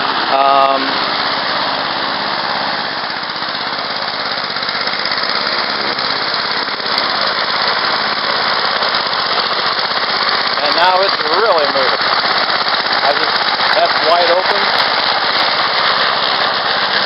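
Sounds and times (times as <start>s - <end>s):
lawn mower engine running: 0.0s - 17.0s.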